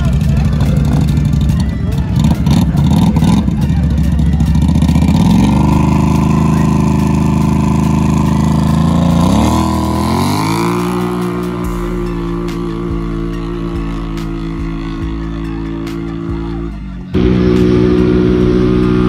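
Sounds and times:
quad engines revving: 0.0s - 19.0s.

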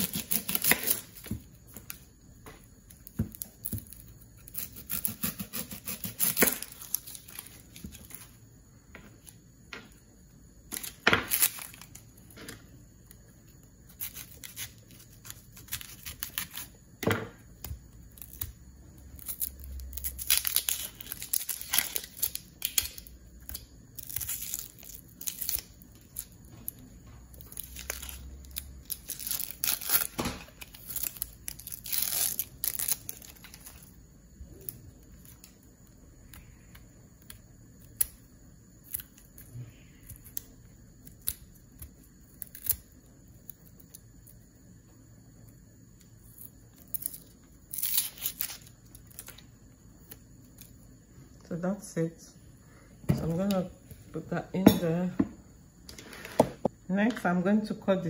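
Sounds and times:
onion skin crackling and tearing: 0.0s - 2.0s, 2.9s - 8.4s, 10.7s - 12.1s, 12.9s - 16.8s, 17.5s - 36.5s, 37.2s - 44.4s, 46.0s - 50.8s.

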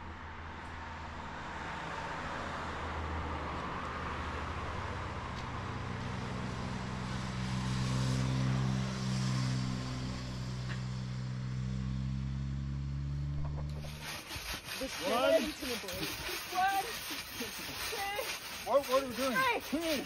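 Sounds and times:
vehicle engine running: 5.7s - 14.0s.

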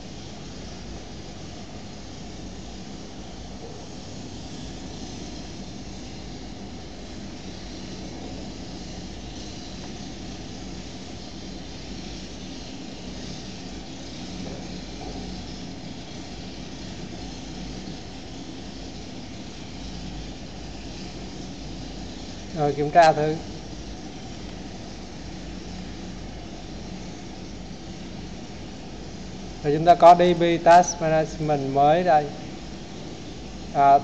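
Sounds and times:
constant hiss: 0.0s - 34.0s.

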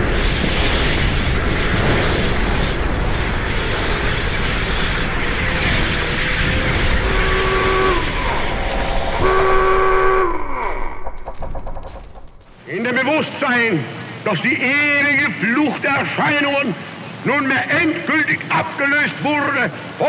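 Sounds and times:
train rumbling: 0.0s - 13.4s
train whistle blasts: 7.0s - 8.1s, 9.2s - 10.7s.

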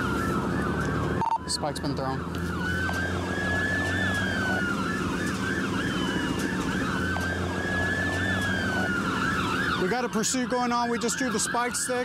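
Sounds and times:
engine and road hum: 0.0s - 12.0s
police siren wailing: 0.0s - 12.0s
police siren yelping: 0.0s - 12.0s.

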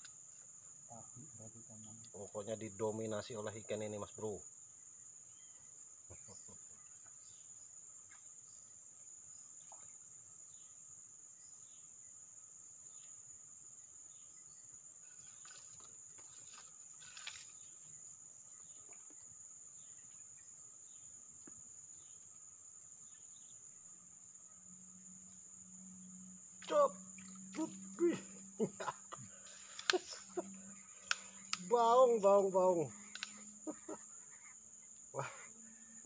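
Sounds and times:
insects buzzing: 0.0s - 36.0s
faint clicks: 29.5s - 31.7s, 33.0s - 33.4s.

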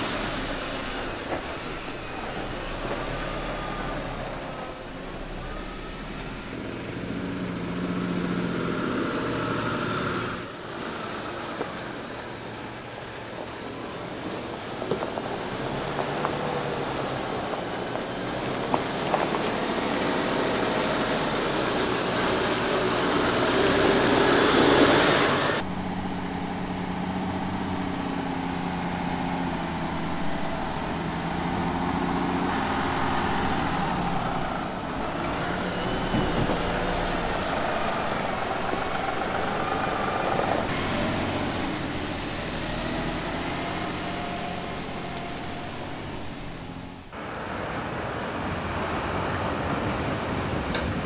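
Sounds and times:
truck diesel engine running: 15.4s - 47.1s.

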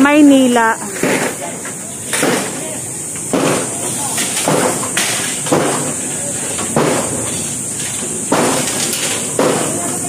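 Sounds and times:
steady hiss: 0.0s - 10.0s
voices: 0.0s - 10.0s
knocks and bangs on metal frame: 3.3s - 10.0s.

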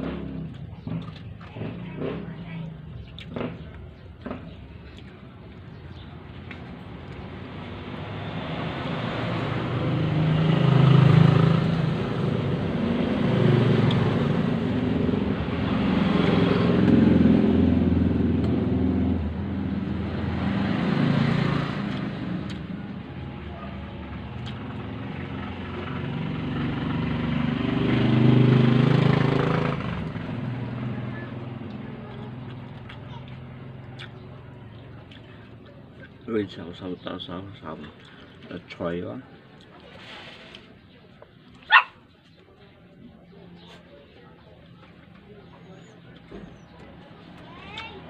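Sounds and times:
vehicle engines passing by: 0.0s - 48.0s.

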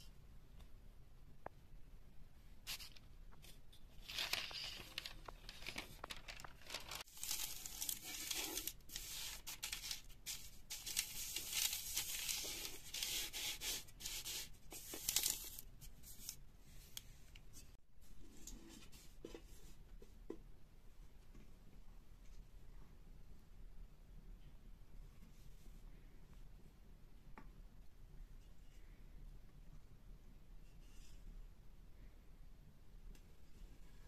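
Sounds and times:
baking paper crinkling and tearing: 3.9s - 16.4s.

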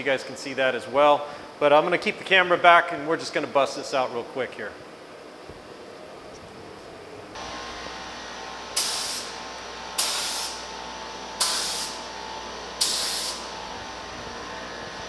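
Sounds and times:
spray gun hissing bursts: 8.7s - 10.8s, 11.4s - 13.6s.

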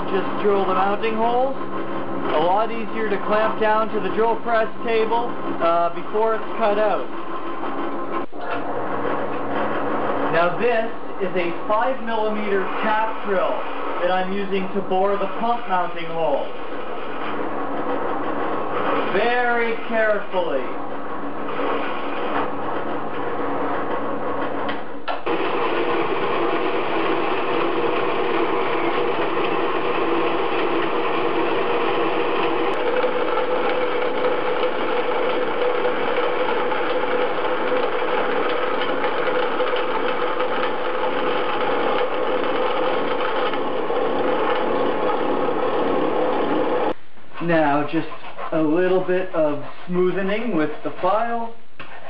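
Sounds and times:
drill press motor running: 0.0s - 47.0s
power saw cutting metal: 25.3s - 46.9s.

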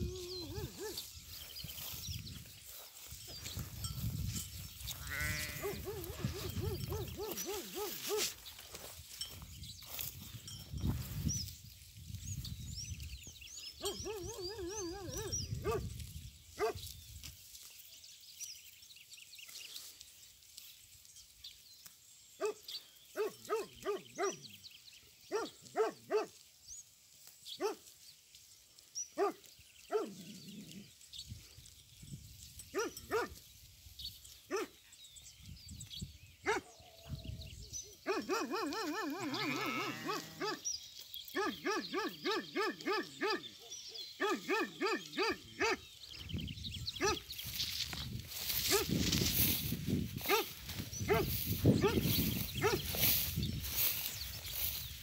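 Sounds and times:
dog barking: 0.5s - 1.0s, 5.6s - 8.3s, 13.8s - 15.8s, 16.6s - 16.8s, 22.4s - 22.6s, 23.2s - 24.4s, 25.3s - 26.4s, 27.6s - 27.8s, 29.2s - 30.2s, 32.8s - 33.4s, 34.5s - 34.8s, 36.4s - 36.8s, 38.0s - 39.2s, 40.0s - 40.6s, 41.4s - 45.8s, 47.0s - 47.2s, 48.7s - 48.9s, 50.2s - 50.5s, 51.1s - 52.9s
sheep bleating: 5.0s - 5.9s, 39.1s - 40.4s.

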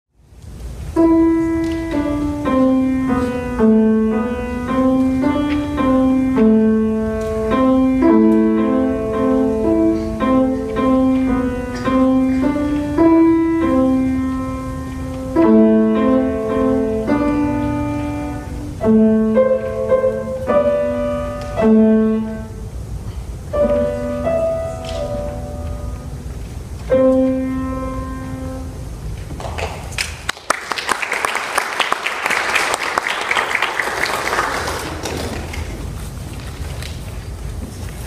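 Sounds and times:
grand piano melody: 0.4s - 29.4s.

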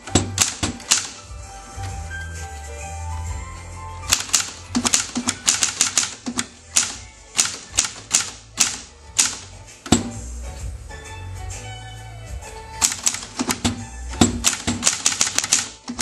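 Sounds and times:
manual typewriter typing: 0.0s - 1.2s, 4.1s - 10.1s, 12.8s - 16.0s.

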